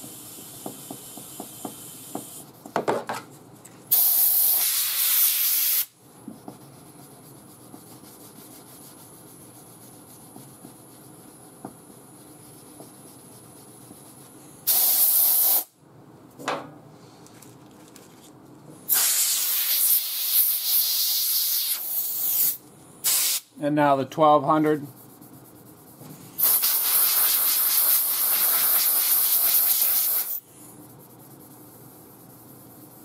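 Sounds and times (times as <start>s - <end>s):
compressed air blasts: 3.9s - 6.0s, 14.6s - 15.7s, 18.9s - 23.5s, 26.4s - 30.5s
sanding pad rubbing: 6.4s - 14.4s.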